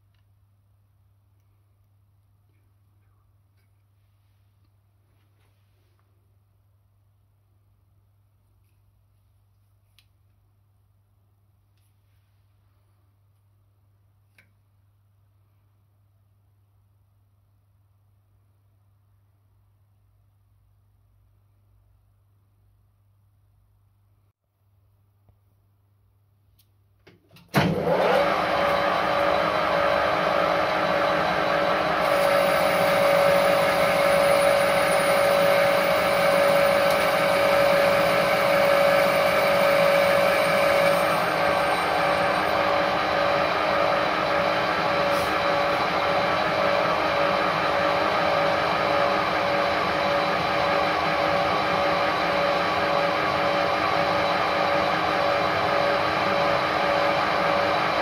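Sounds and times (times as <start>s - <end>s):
lathe running: 27.6s - 58.0s
gear whine: 32.0s - 43.4s.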